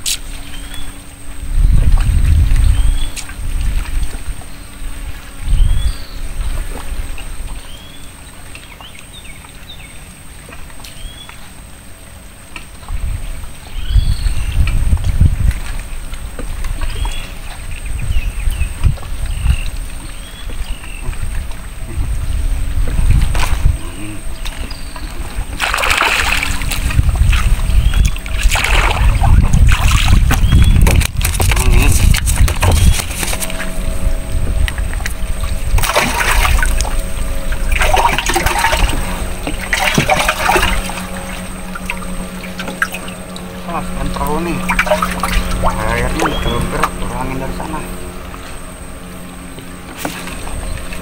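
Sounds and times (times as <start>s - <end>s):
low rumble: 0.0s - 7.8s, 11.8s - 51.0s
steady high-pitched whine: 0.0s - 51.0s
water splashing: 22.6s - 51.0s
small birds chirping: 23.9s - 25.4s, 30.3s - 30.9s, 42.3s - 49.7s.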